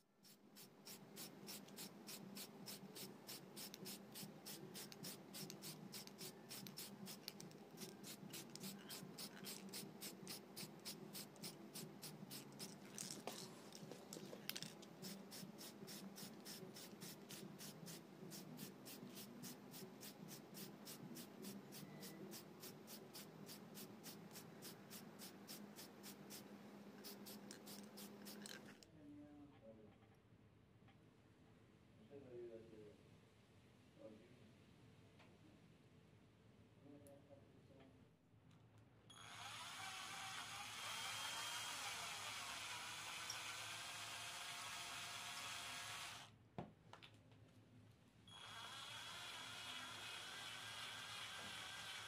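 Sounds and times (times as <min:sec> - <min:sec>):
spray-paint can hissing: 0:00.2 - 0:13.4, 0:14.6 - 0:28.7.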